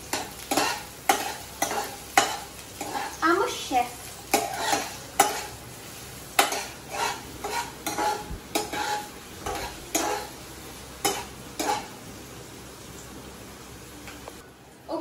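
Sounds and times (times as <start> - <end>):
onions sizzling in oil: 0.0 - 15.0
metal spoon scraping a wok: 0.1 - 3.2, 4.3 - 5.6, 6.4 - 10.4, 11.0 - 12.0.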